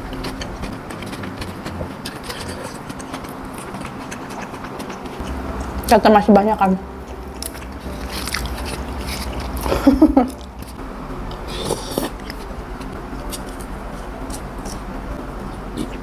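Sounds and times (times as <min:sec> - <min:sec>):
mouth sound: 0:00.0 - 0:05.8
person chewing food: 0:00.0 - 0:05.8, 0:07.0 - 0:12.5, 0:15.5 - 0:16.0.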